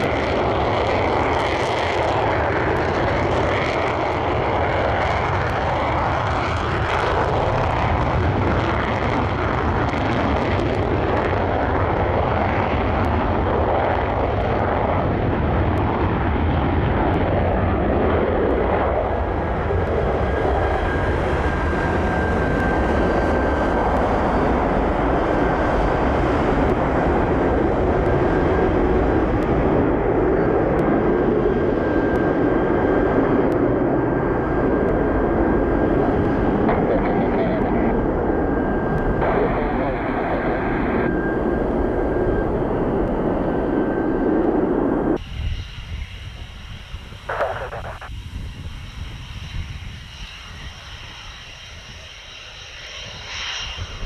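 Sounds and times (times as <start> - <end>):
jet taking off with afterburner: 0.0 - 54.0
faint high whine: 35.3 - 50.9.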